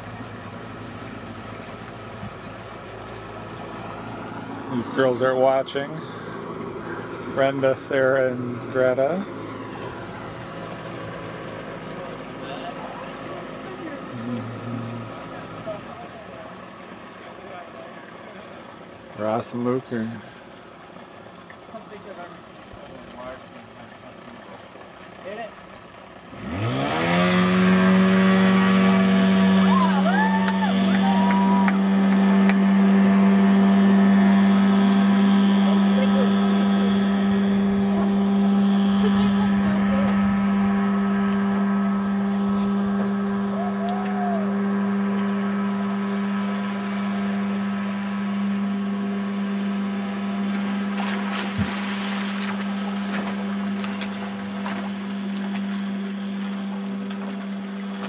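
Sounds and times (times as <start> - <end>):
motorboat engine droning: 0.0 - 58.0
rush of water or wind: 51.0 - 58.0.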